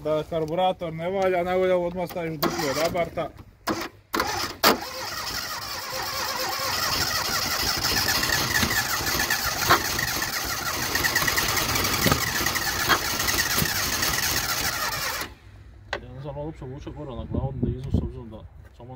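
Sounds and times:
engine pops: 2.1s - 16.0s
car engine cranking and running roughly: 2.4s - 15.6s.

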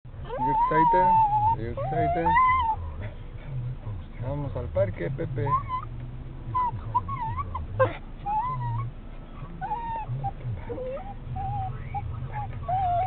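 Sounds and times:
dog whining: 0.2s - 3.0s, 5.4s - 13.0s.

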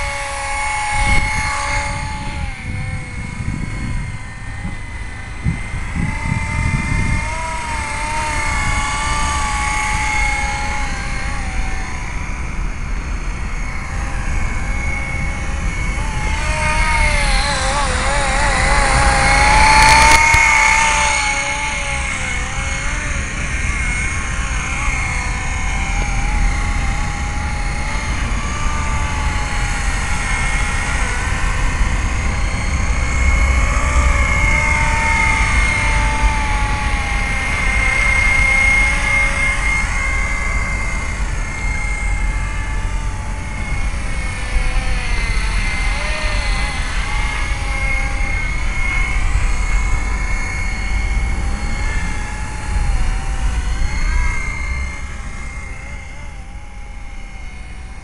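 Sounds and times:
rc helicopter rotor whine: 0.0s - 58.0s.

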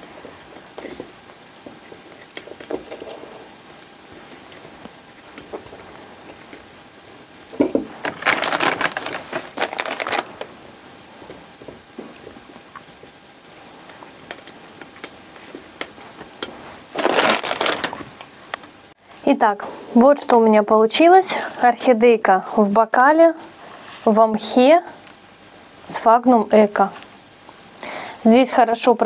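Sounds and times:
plastic bag crinkling: 7.5s - 10.6s, 16.8s - 18.2s.

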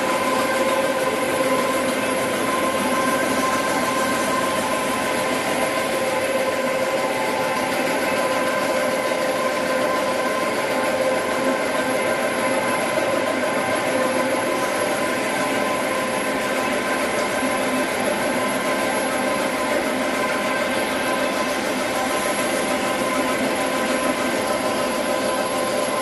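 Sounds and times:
printing machine drone: 0.0s - 26.0s.

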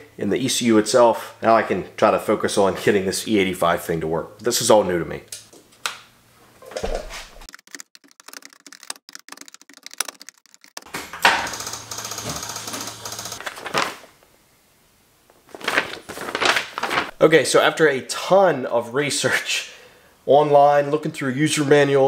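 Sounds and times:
laptop keyboard typing: 7.5s - 13.6s
rustling handling noise: 13.4s - 14.3s, 15.2s - 17.2s.

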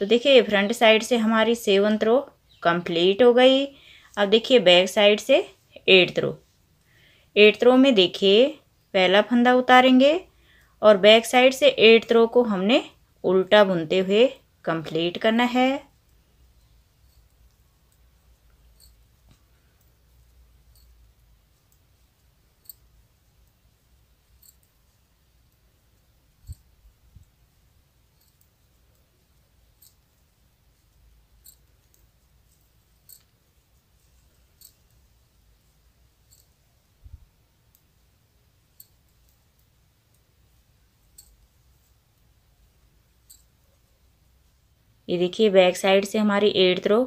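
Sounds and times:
knitting needles clicking: 15.8s - 43.8s.

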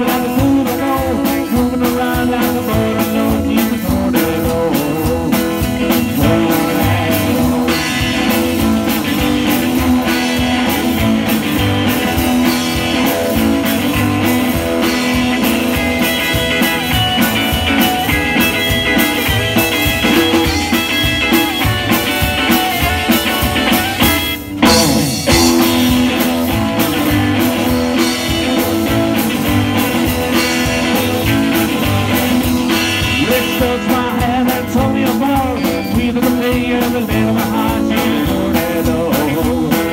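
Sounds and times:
live rock and roll band playing: 0.0s - 39.9s.

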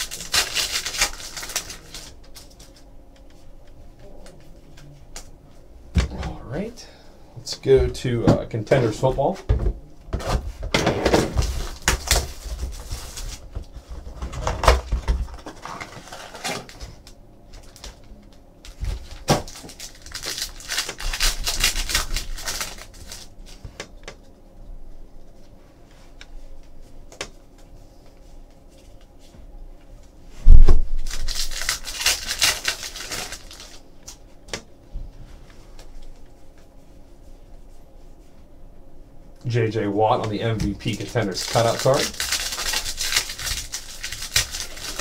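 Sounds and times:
foil packs crinkling: 0.0s - 2.8s, 11.3s - 13.6s, 14.3s - 18.1s, 18.7s - 23.4s, 31.0s - 33.8s, 40.4s - 45.0s.

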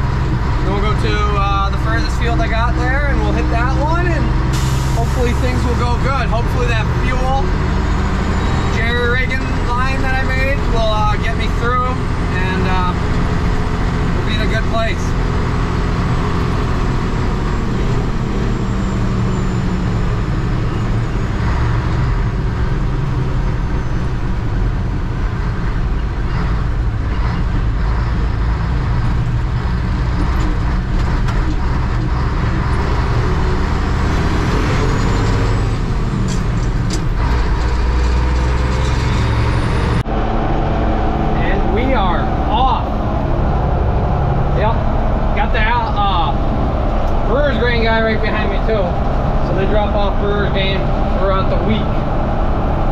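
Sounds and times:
vehicle engine and road noise: 0.0s - 52.9s.

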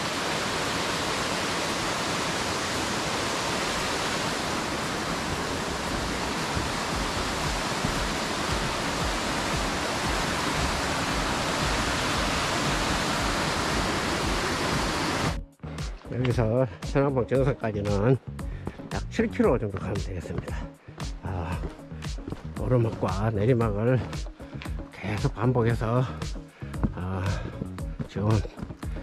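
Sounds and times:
stream water rushing: 0.0s - 16.0s.

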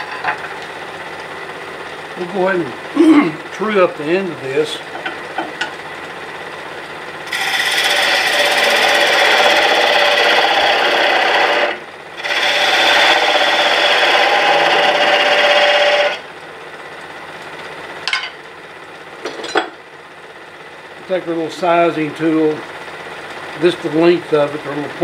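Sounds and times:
wood lathe running: 2.0s - 5.8s, 7.2s - 16.4s
turning tool rasping on wood: 7.3s - 16.2s.

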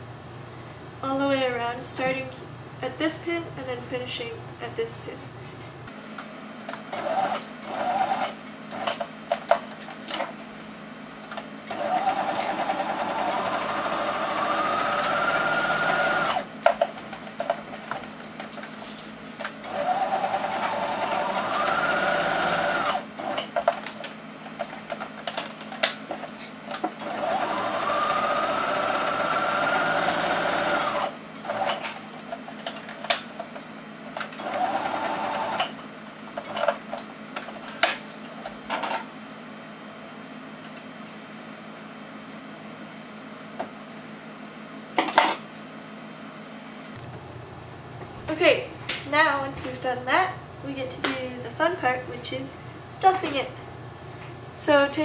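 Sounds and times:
sewing machine motor whine: 6.9s - 8.9s, 11.7s - 16.5s, 19.6s - 23.5s, 27.0s - 31.8s, 34.4s - 35.8s.

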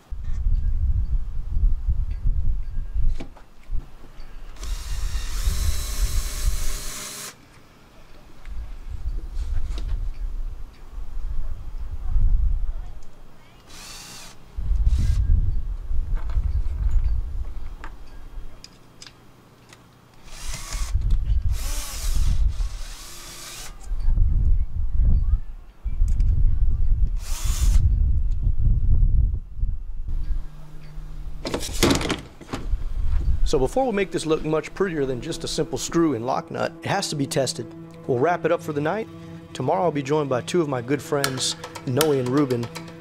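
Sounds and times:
cordless drill boring: 4.6s - 7.4s, 13.7s - 15.2s, 20.2s - 23.8s, 27.2s - 27.8s
low rumble: 14.6s - 17.8s.

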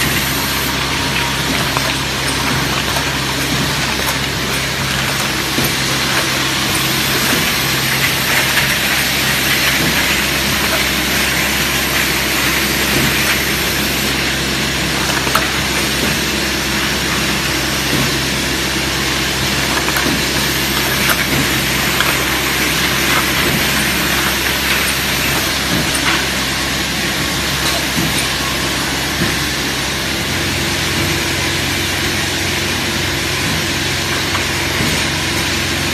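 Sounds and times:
machine hum: 0.0s - 35.9s
machine hiss: 6.6s - 14.2s.

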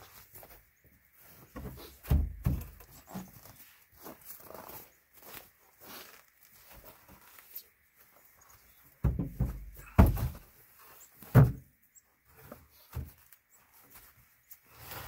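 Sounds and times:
wooden bed frame thudding: 9.0s - 10.4s.

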